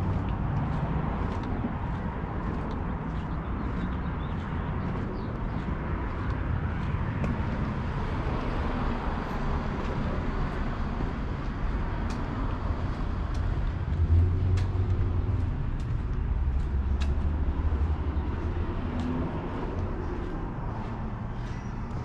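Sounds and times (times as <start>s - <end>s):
low traffic rumble: 0.0s - 22.0s.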